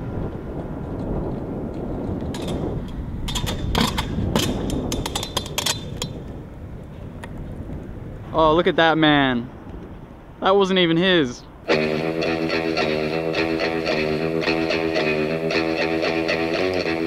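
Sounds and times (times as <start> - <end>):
scooter wheels rolling on concrete: 0.0 - 8.7
scooter clacks and knocks: 2.2 - 6.3.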